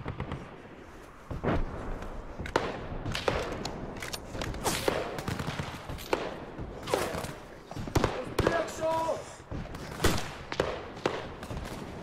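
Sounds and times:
background noise: 0.0 - 12.0
gunshots: 2.4 - 12.0.

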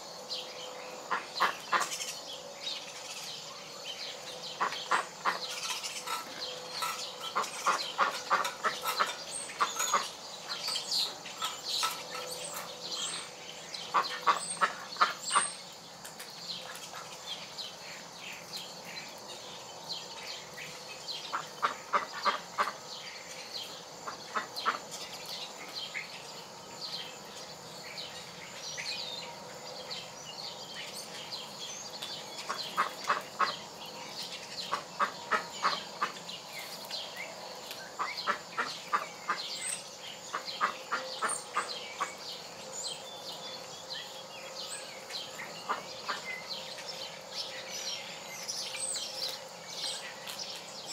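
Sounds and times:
insects chirping: 0.0 - 50.9
wild birds chirping: 0.0 - 50.9
chickens clucking: 4.5 - 15.6, 32.3 - 33.8, 34.4 - 36.9, 37.7 - 42.4.

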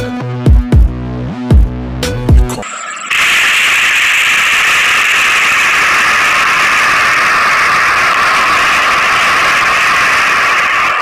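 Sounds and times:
loud hiss-like rushing noise: 3.1 - 11.0.

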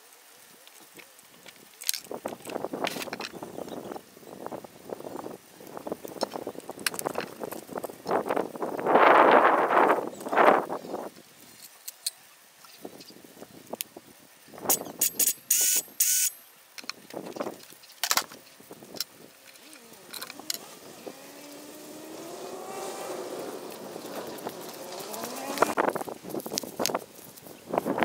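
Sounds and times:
faint rising and falling tone: 19.6 - 25.9.

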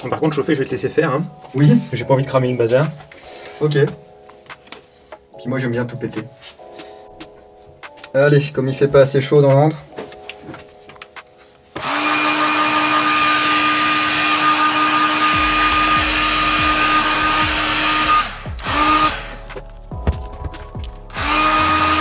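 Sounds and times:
heat gun blowing air: 11.8 - 19.5, 21.1 - 22.0.

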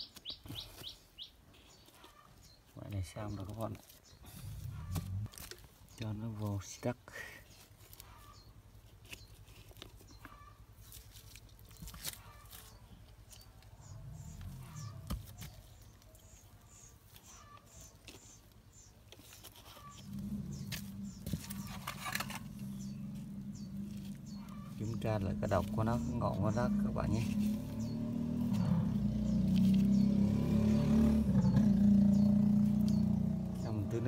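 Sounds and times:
rustling and scraping of soil: 0.0 - 34.0.

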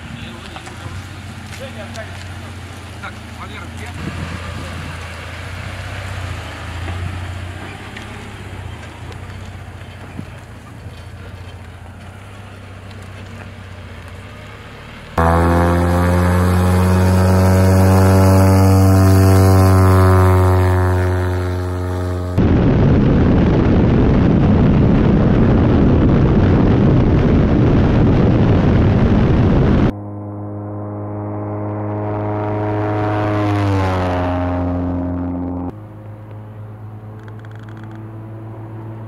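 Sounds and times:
drone engine and propeller: 0.0 - 39.0
rushing wind noise: 2.4 - 11.9, 16.0 - 30.0.

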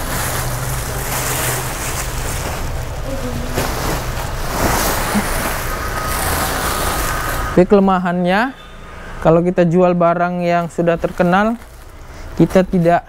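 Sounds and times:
plastic sack rustling and crinkling: 0.0 - 7.6, 10.4 - 13.0.

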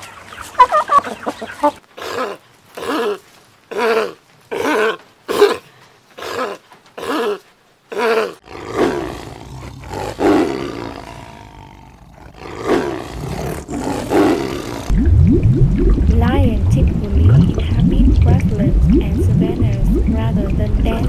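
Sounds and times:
tiger growling: 8.3 - 14.9.

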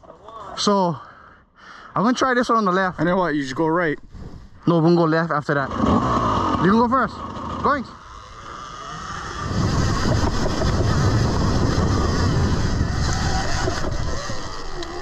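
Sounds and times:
dirt bike engine revving: 5.4 - 15.0
wind buffeting microphone: 8.1 - 15.0.

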